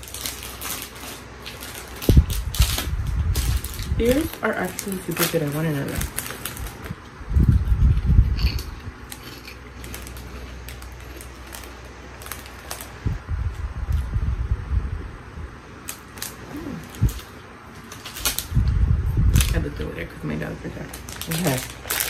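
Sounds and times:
plastic bag crinkling: 0:00.0 - 0:14.1, 0:15.8 - 0:22.0
chewing: 0:07.7 - 0:11.8.

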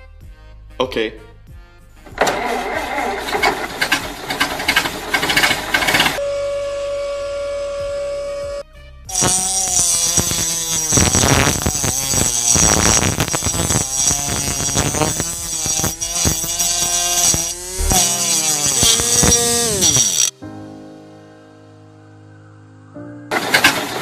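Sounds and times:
small electric motor whining: 0:04.7 - 0:20.3.

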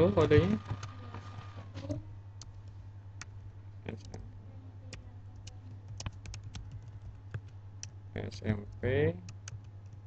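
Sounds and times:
steady low hum: 0:00.0 - 0:10.0
keyboard key clicks: 0:05.4 - 0:07.6.

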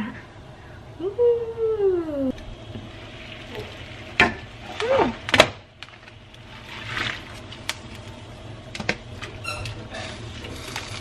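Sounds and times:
steady low hum: 0:00.0 - 0:11.0
short squeak: 0:09.4 - 0:09.8.

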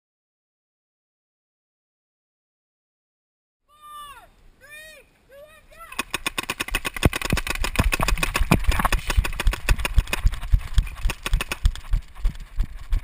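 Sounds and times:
running footsteps on sand: 0:07.0 - 0:13.0.

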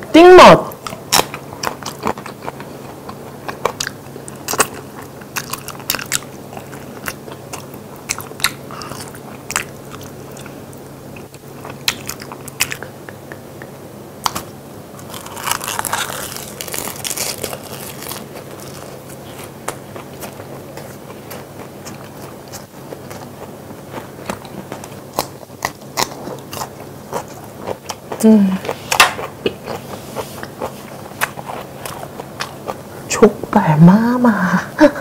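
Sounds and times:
wet chewing: 0:00.8 - 0:13.4, 0:15.0 - 0:32.9
crunchy bites: 0:14.2 - 0:28.2.

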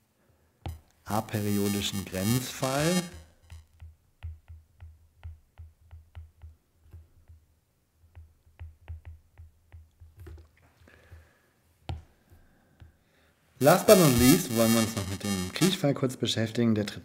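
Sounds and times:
stylus tapping on tablet screen: 0:03.4 - 0:07.4, 0:08.0 - 0:11.2, 0:11.9 - 0:12.1.

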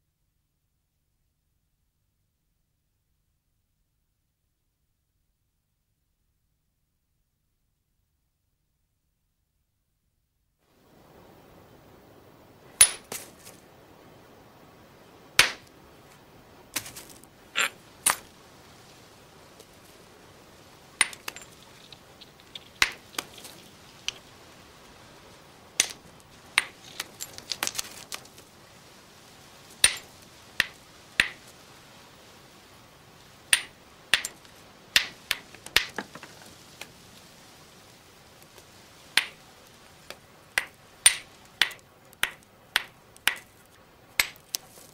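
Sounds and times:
hammerstone striking stone: 0:12.8 - 0:13.1, 0:15.4 - 0:15.6, 0:21.0 - 0:21.5, 0:25.8 - 0:26.0, 0:29.8 - 0:31.4, 0:33.5 - 0:34.4, 0:40.6 - 0:43.5, 0:44.2 - 0:44.4.

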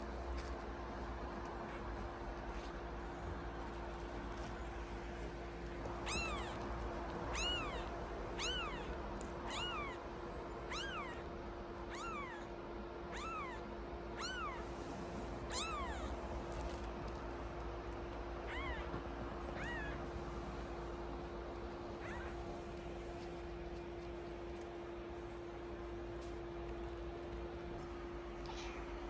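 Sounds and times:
kitten mewing: 0:05.9 - 0:10.0, 0:10.7 - 0:12.5, 0:13.1 - 0:14.7, 0:15.5 - 0:16.2, 0:18.4 - 0:20.1, 0:22.0 - 0:22.5, 0:28.4 - 0:29.0.

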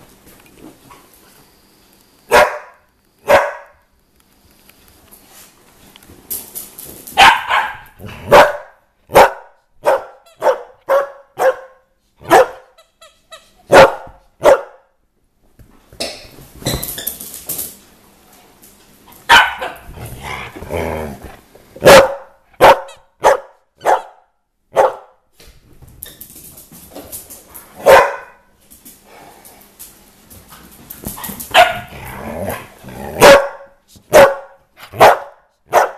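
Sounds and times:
dogs barking: 0:02.3 - 0:03.7, 0:07.2 - 0:12.7, 0:13.7 - 0:14.9, 0:19.3 - 0:19.9, 0:21.8 - 0:25.2, 0:27.8 - 0:28.4, 0:31.5 - 0:32.1, 0:33.0 - 0:35.9.

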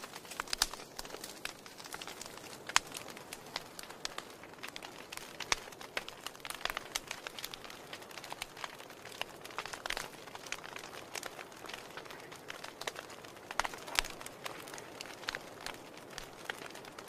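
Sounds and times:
wood fire crackling: 0:00.0 - 0:17.0.

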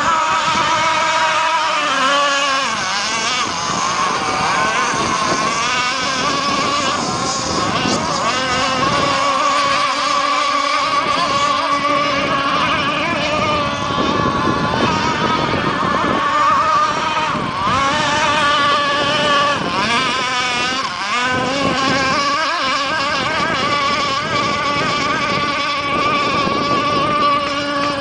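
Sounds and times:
model boat engines whining: 0:00.0 - 0:28.0.

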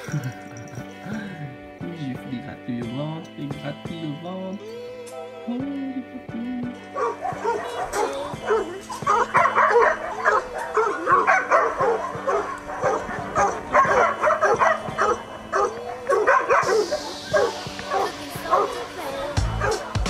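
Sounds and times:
background music: 0:00.0 - 0:20.0
dogs barking and yapping: 0:06.9 - 0:20.0.

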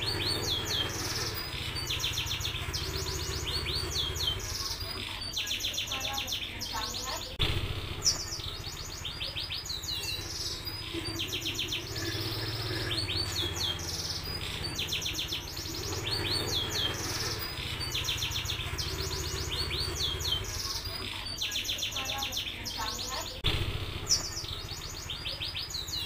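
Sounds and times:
canary singing trills: 0:00.0 - 0:26.0
low steady hum: 0:07.1 - 0:21.2.

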